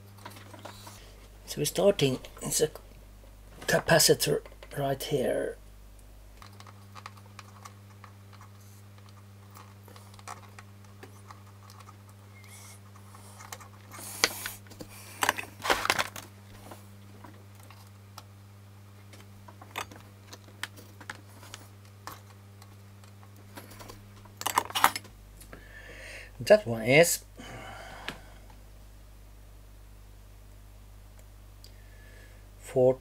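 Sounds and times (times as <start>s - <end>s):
low steady hum: 0.0s - 33.0s
clattering and rustling bursts: 12.9s - 17.9s.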